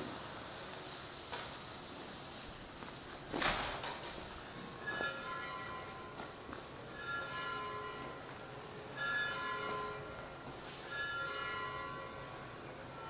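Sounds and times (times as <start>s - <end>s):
church bell tolling: 4.4s - 13.0s.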